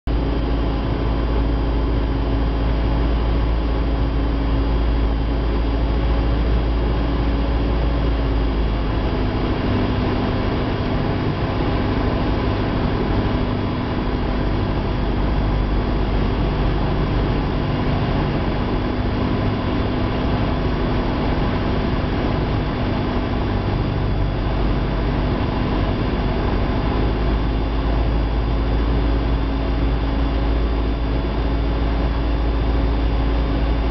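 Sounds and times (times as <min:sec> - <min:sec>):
propeller plane engine droning: 0:00.1 - 0:33.9.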